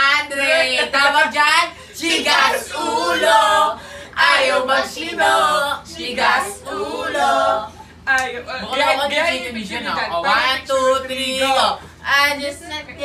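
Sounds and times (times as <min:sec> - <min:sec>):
young men singing together: 0:02.0 - 0:07.8.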